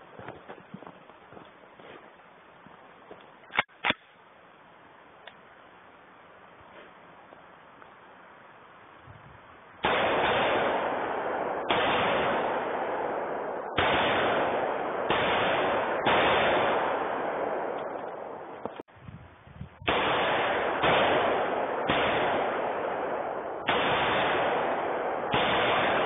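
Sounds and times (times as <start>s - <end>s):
rifle shots: 9.8s - 18.8s, 19.8s - 26.0s.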